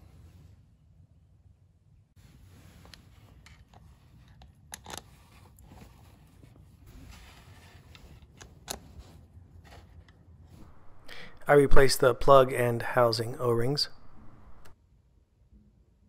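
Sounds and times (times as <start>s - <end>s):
handling small parts: 2.8s - 10.8s.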